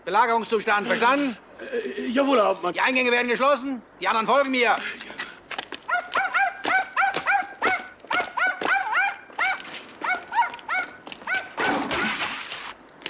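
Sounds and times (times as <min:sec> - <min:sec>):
dog yapping: 0:05.8 - 0:12.3.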